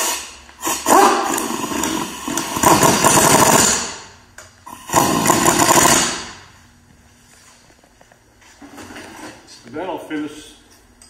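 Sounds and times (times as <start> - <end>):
pneumatic impact wrench hammering: 0.0 - 6.5.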